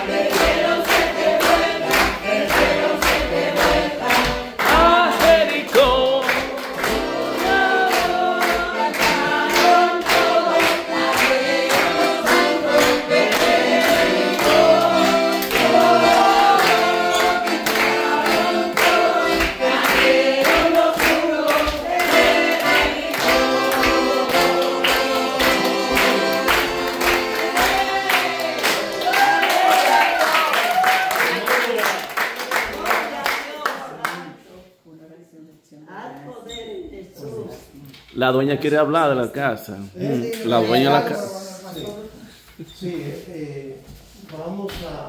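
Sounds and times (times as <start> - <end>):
group singing worship song: 0.0 - 30.1
people clapping: 0.0 - 34.4.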